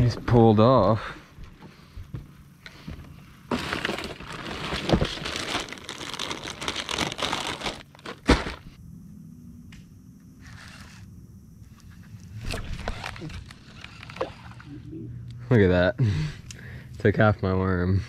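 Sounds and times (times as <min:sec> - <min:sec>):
plastic bag crinkling: 0:03.5 - 0:08.7.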